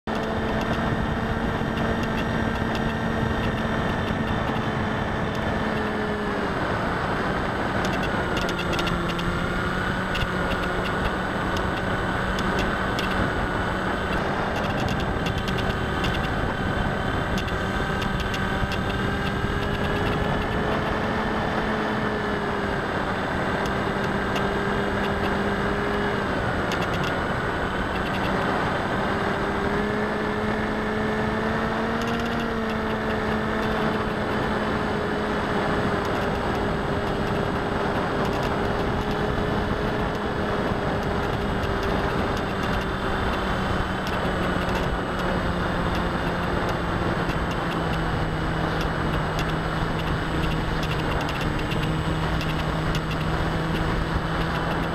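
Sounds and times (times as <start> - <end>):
model plane propeller droning: 0.1 - 54.9.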